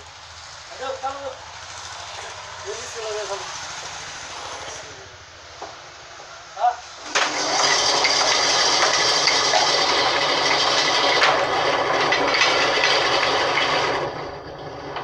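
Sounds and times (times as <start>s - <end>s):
band saw cutting log: 0.0s - 15.0s.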